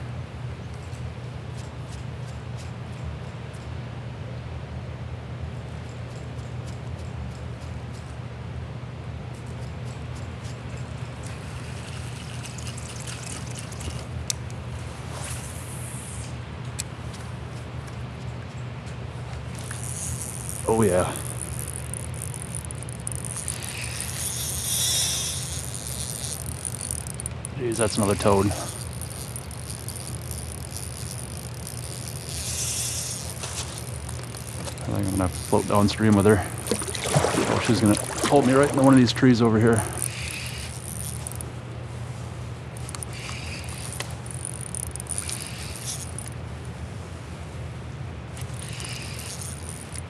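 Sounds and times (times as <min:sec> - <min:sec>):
steady low hum: 0:00.0 - 0:50.0
fishing reel buzzing: 0:10.4 - 0:14.1, 0:19.5 - 0:41.5, 0:42.8 - 0:46.4, 0:48.3 - 0:50.0.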